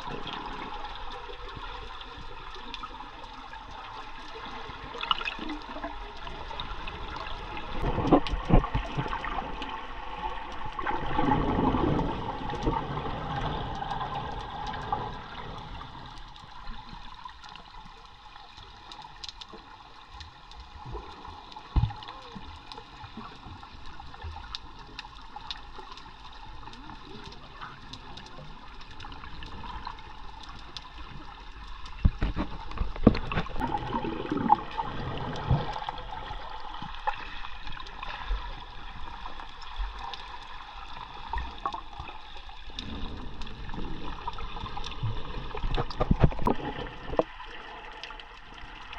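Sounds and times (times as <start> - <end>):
muffled underwater noise: 20.9 - 25.0, 26.4 - 39.9.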